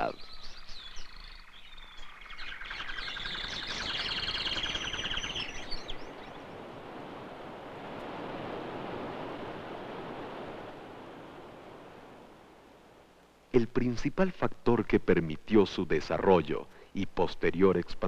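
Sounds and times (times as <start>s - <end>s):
birds chirping and trilling: 0.0s - 7.3s.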